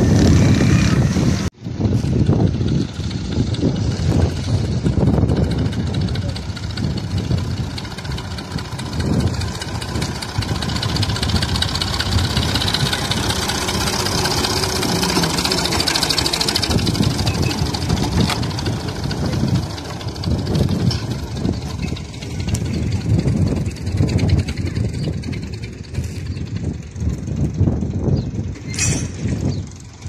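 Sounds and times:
tractor diesel engine passing: 0.0 - 30.0.

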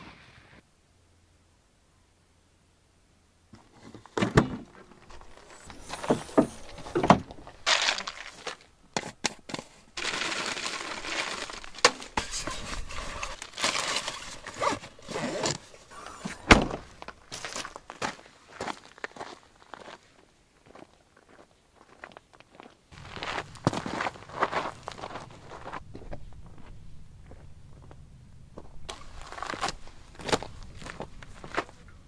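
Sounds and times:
plastic bag crinkling: 7.4 - 8.7, 10.0 - 15.0
nuts rattling out of a jar: 7.6 - 8.5, 10.0 - 12.1.

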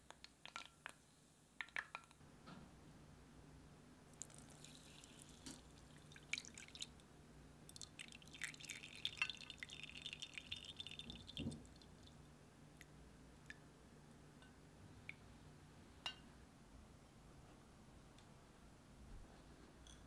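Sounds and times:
butter trickling and crackling: 4.1 - 7.0, 7.6 - 12.3.

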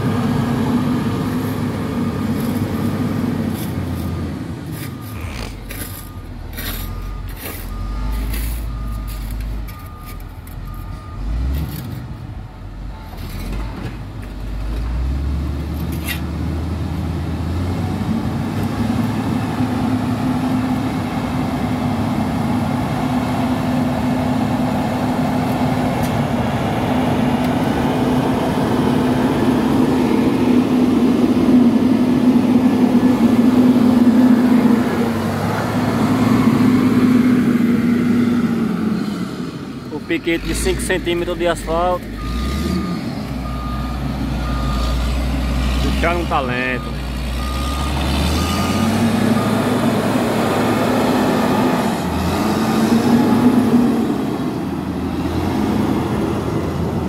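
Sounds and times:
diesel engine under load: 0.0 - 57.0
reversing alarm beeping: 2.0 - 11.5, 35.7 - 37.4, 40.0 - 51.3.

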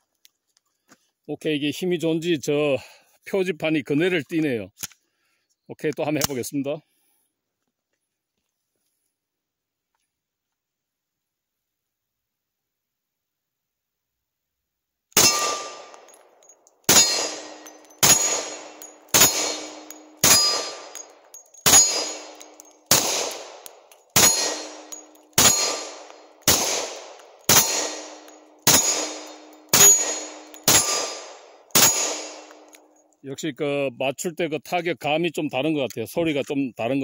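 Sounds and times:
pistol shots with ringing tail: 15.2 - 32.9.

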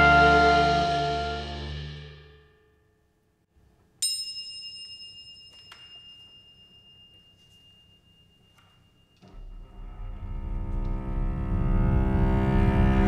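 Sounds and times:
orchestral chord of strings and brass: 0.0 - 2.2.

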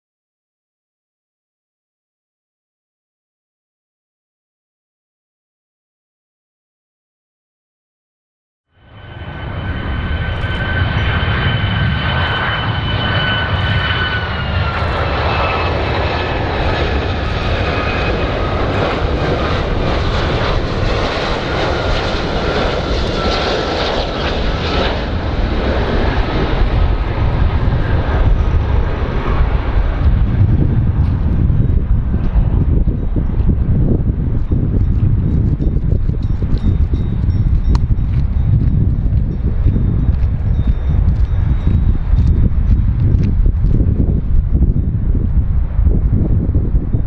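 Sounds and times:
jet engines whining: 8.8 - 46.9
low rumble: 8.8 - 47.0.

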